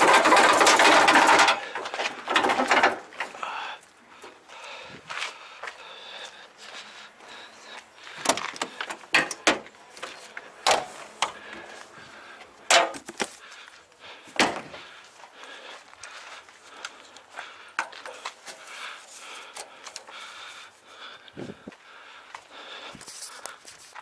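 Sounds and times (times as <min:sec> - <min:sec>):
sharp clicks and knocks: 0:00.0 - 0:03.3, 0:08.2 - 0:09.7.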